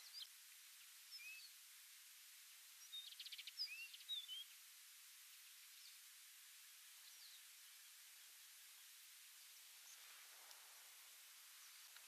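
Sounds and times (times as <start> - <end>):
bird chirping: 0.0 - 1.6, 2.8 - 4.5, 6.9 - 8.9
faint steady hiss: 0.0 - 12.0.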